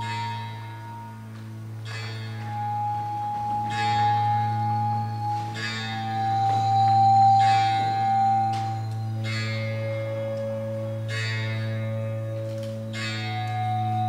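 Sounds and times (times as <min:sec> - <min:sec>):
low drone: 0:00.0 - 0:14.0
bell-like strikes: 0:01.8 - 0:10.3
held high note: 0:01.9 - 0:14.0.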